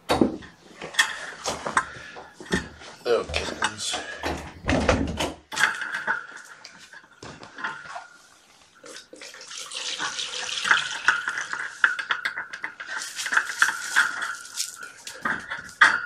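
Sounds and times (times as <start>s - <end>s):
water running from a tap: 8.8s - 11.5s.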